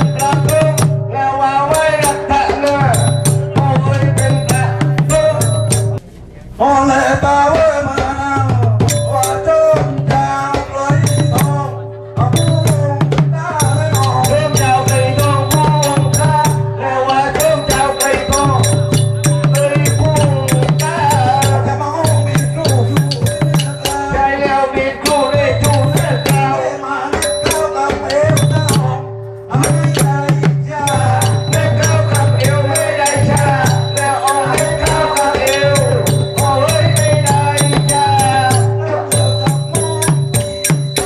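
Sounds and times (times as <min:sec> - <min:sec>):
sustained tone: 0:00.0 - 0:07.2, 0:13.6 - 0:41.0
wavering melody line: 0:00.0 - 0:07.2, 0:08.8 - 0:41.0
drums beating quick pattern: 0:00.0 - 0:41.0
sharp cymbal strikes: 0:08.8 - 0:41.0.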